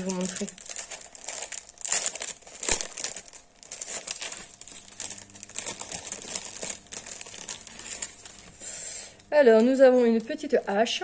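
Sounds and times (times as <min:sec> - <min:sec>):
plastic packaging crinkling: 0:00.0 - 0:08.7.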